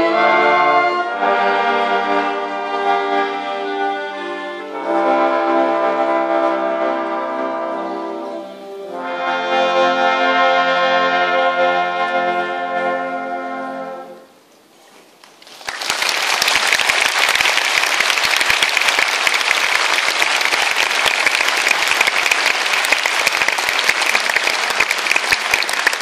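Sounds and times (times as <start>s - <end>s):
brass band chord: 0.0s - 14.3s
audience applause: 15.3s - 26.0s.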